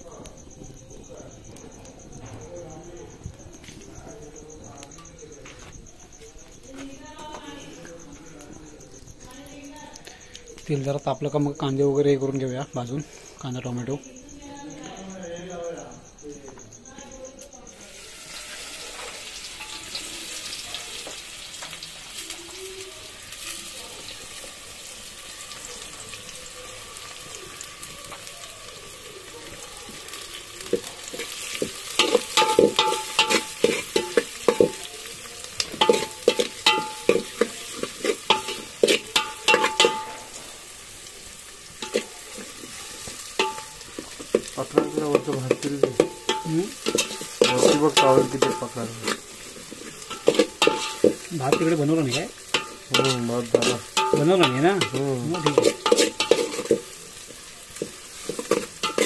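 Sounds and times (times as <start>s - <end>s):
onions sizzling in oil: 0.0s - 59.0s
spoon scraping metal pot: 30.7s - 34.9s, 35.6s - 40.3s, 41.8s - 59.0s.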